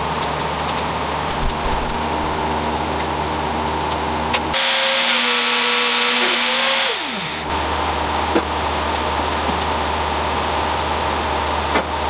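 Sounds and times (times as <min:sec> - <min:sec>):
low hum: 0:01.2 - 0:03.6
power tool motor whining: 0:04.5 - 0:07.6.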